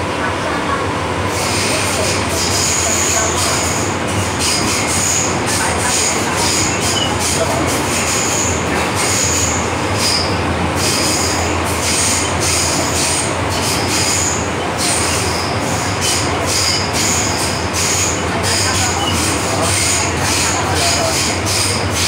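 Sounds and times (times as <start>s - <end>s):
train rumble and hum: 0.0s - 22.0s
high-pitched wheel squeal: 6.0s - 20.6s.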